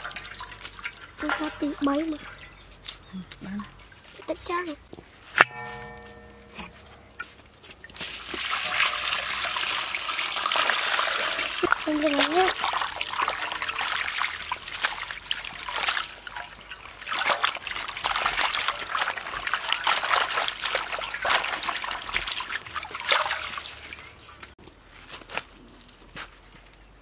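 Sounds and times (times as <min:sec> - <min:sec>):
lettuce splashing in water basin: 0:00.0 - 0:04.8, 0:07.8 - 0:24.6
water pouring off leaves: 0:00.0 - 0:04.8, 0:07.8 - 0:24.6.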